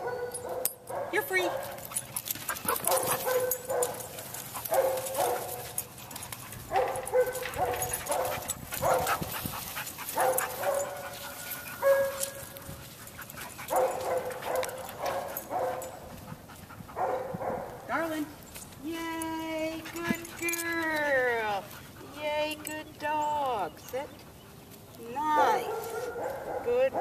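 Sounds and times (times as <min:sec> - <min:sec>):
dogs barking: 0:00.0 - 0:17.9, 0:25.2 - 0:27.0.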